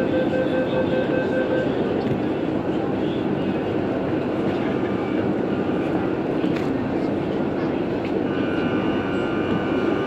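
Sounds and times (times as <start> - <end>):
train interior rumble and hiss: 0.0 - 10.0.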